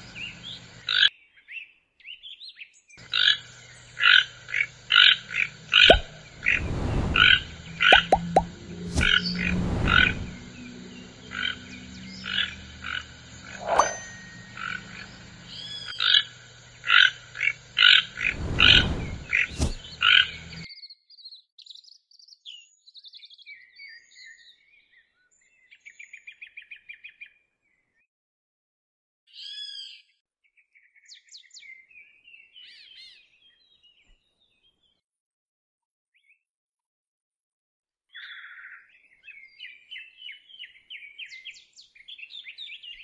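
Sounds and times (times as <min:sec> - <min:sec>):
faint high bird chirps: 0:00.0 - 0:27.3, 0:38.1 - 0:43.0.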